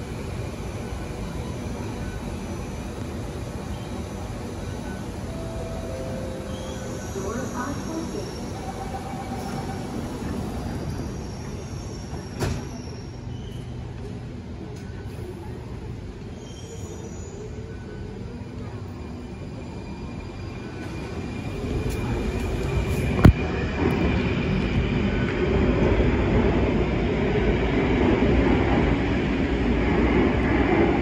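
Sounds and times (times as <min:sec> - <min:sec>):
metro train rumble: 0:00.0 - 0:31.0.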